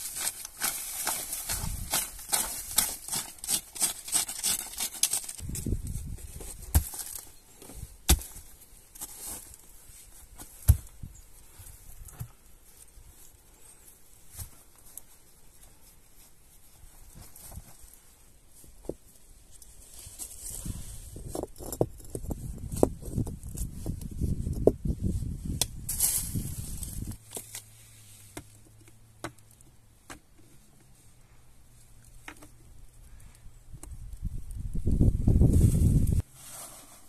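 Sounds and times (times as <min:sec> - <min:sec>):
hand tool scraping dry soil: 0:00.0 - 0:18.0, 0:35.3 - 0:37.0
rocks thumping and knocking: 0:05.4 - 0:08.5, 0:10.4 - 0:11.1.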